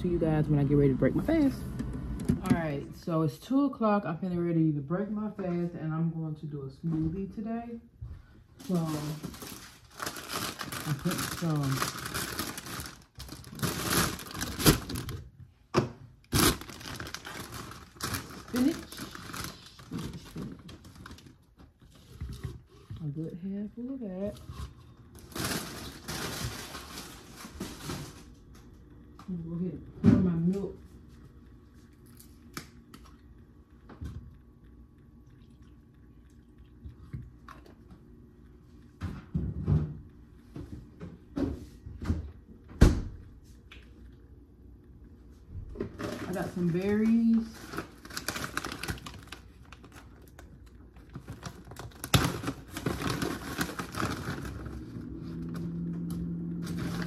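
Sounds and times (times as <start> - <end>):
plastic bag crinkling: 8.6 - 15.4, 16.2 - 22.9, 24.0 - 28.6, 46.0 - 57.0
sharp crackles of plastic: 8.6 - 29.5, 45.6 - 57.0
milk pouring: 31.2 - 38.8.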